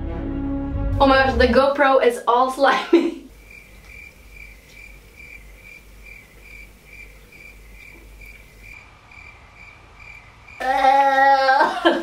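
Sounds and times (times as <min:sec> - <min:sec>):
faint low hum: 0:01.0 - 0:12.0
cricket chirping: 0:03.0 - 0:12.0.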